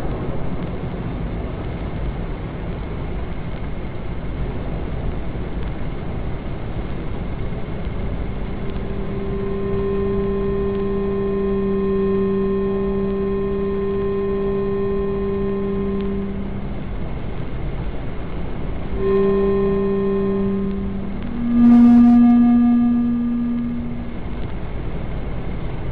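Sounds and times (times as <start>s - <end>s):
low rumbling noise: 0.0s - 25.9s
chord of held tones: 7.0s - 24.7s.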